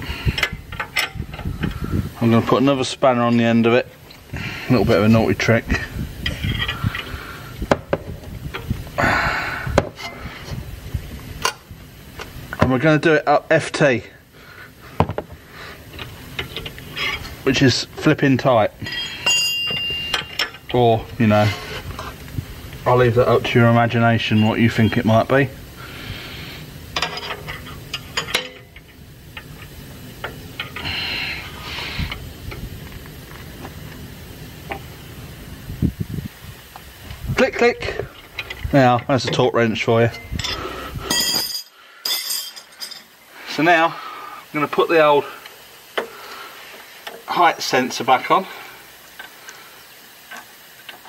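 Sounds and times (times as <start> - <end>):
spanners clinking: 15.9 - 22.2, 23.0 - 25.4, 26.9 - 30.9, 37.6 - 43.2.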